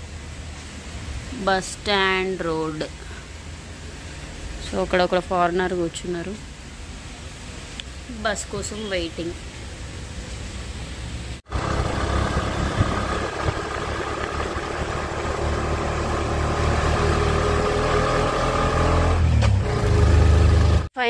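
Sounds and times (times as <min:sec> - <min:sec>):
outdoor background noise: 0:00.0 - 0:21.0
auto-rickshaw engine rumbling: 0:08.7 - 0:20.9.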